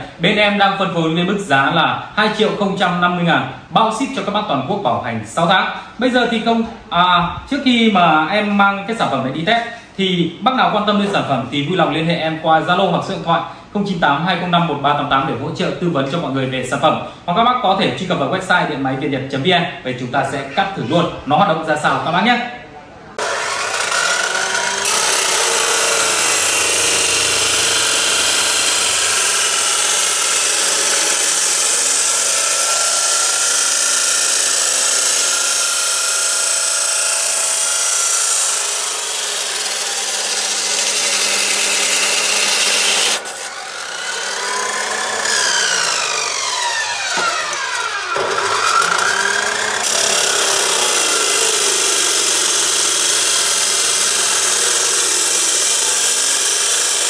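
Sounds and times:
cut-off saw grinding steel: 0:23.2 - 0:57.0
saw motor whine: 0:23.2 - 0:57.0.

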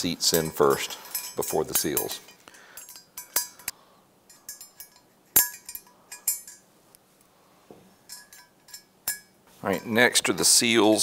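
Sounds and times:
small metal parts clinking: 0:00.3 - 0:06.7, 0:08.0 - 0:10.0.

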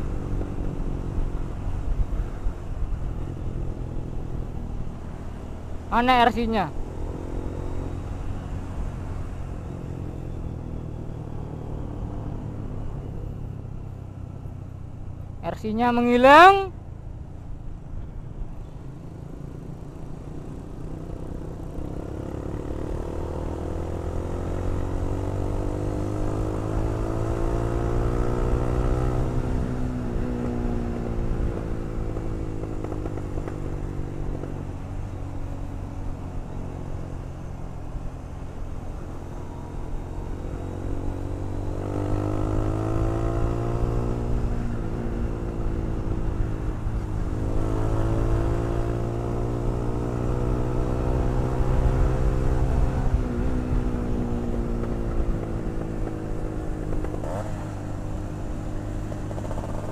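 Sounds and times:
motorcycle engine accelerating: 0:00.0 - 0:14.5, 0:18.9 - 0:59.9.

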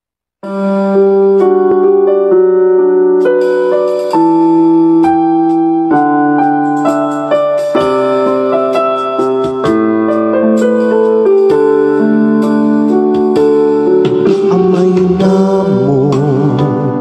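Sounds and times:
sustained piano chords: 0:00.4 - 0:17.0.

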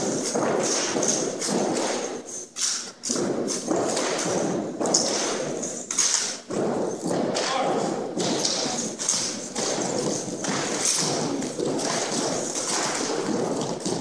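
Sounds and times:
boots and rifles thudding on wood floor: 0:03.1 - 0:14.0.

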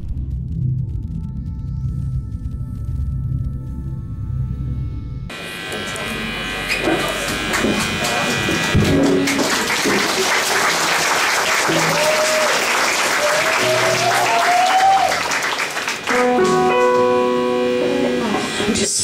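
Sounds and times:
audience applause: 0:07.0 - 0:16.8
sustained keyboard chord: 0:16.0 - 0:19.0.

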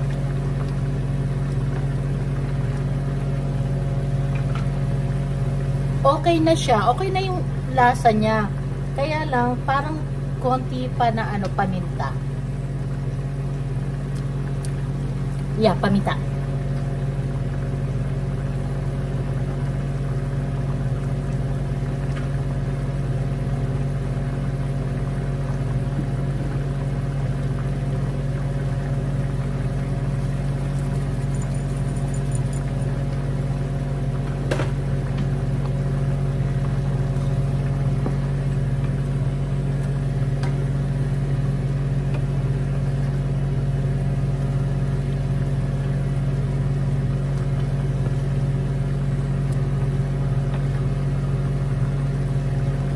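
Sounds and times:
small electric motor humming: 0:29.5 - 0:33.2.

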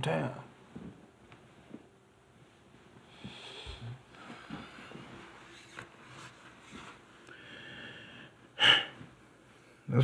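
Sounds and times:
man breathing close to microphone: 0:03.0 - 0:05.4, 0:07.3 - 0:09.6.

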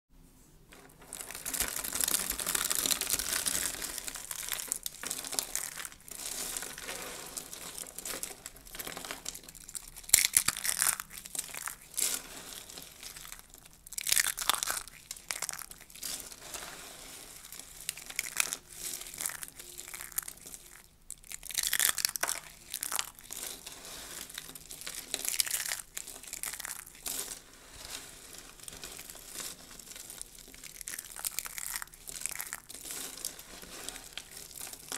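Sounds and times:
soap curls crunching: 0:00.7 - 0:34.9.

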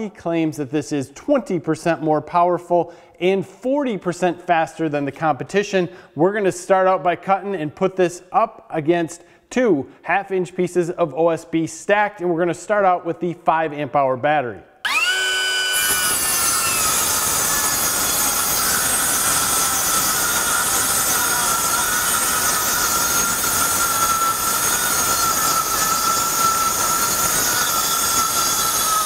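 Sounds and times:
circular saw cutting wood: 0:14.8 - 0:29.0.

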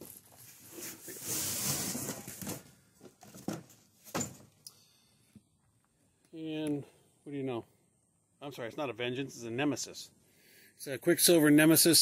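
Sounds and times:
cardboard rustling and scraping: 0:00.0 - 0:04.3.

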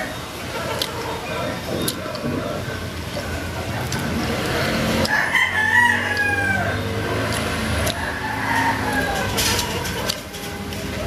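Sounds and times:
rooster crowing: 0:05.0 - 0:06.8, 0:07.9 - 0:09.8.

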